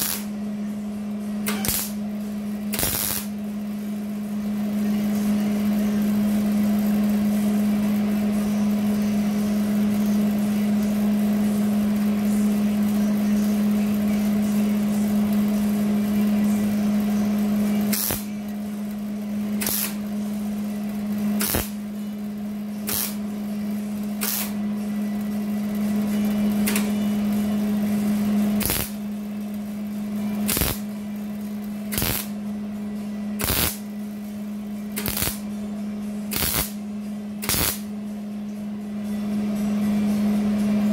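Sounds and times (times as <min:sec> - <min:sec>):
welder crackling: 0:00.0 - 0:00.3, 0:01.5 - 0:02.0, 0:02.8 - 0:03.3, 0:21.4 - 0:21.8, 0:22.9 - 0:23.2, 0:28.6 - 0:29.0, 0:30.4 - 0:30.8, 0:31.9 - 0:32.3, 0:33.4 - 0:33.8, 0:35.0 - 0:35.4, 0:36.3 - 0:36.8, 0:37.4 - 0:37.8
short tack welds: 0:01.5 - 0:02.0, 0:02.8 - 0:03.3, 0:19.6 - 0:20.0, 0:21.4 - 0:21.8, 0:22.9 - 0:23.2, 0:28.6 - 0:28.9, 0:30.5 - 0:30.8, 0:31.9 - 0:32.3, 0:33.4 - 0:33.8, 0:35.0 - 0:35.4, 0:36.3 - 0:36.8, 0:37.4 - 0:37.8.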